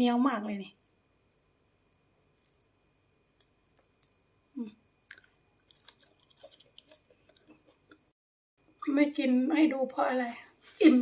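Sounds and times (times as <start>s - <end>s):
crispy fritter crackling when torn: 1.2s - 4.3s, 4.9s - 8.0s.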